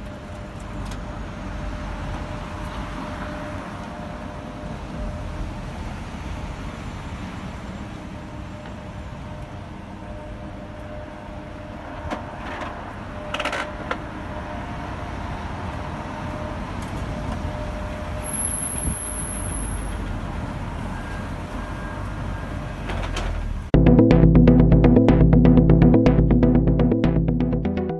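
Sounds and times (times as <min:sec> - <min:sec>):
music: 0:23.8 - 0:27.9.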